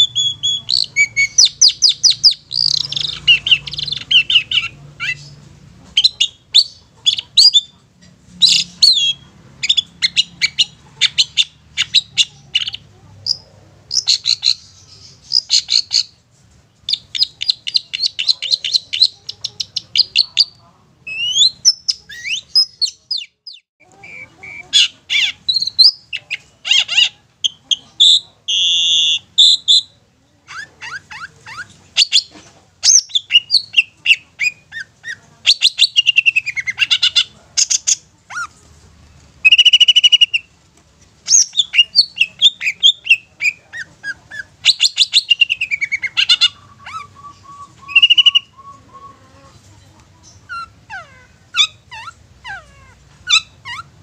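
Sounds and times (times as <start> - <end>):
shrike singing: 41.3 - 49.6.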